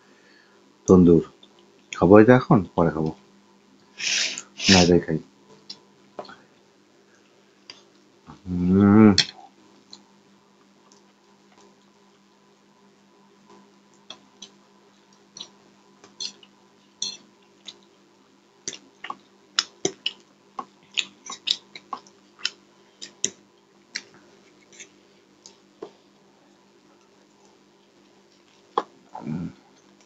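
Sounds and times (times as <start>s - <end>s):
wet chewing clicks and smacks: 13.9s - 16.5s, 17.1s - 18.0s, 18.6s - 24.8s.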